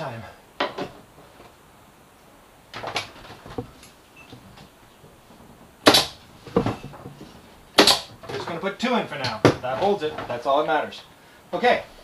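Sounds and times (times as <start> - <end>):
pin nailer shots: 5.8 - 6.2, 7.8 - 8.2.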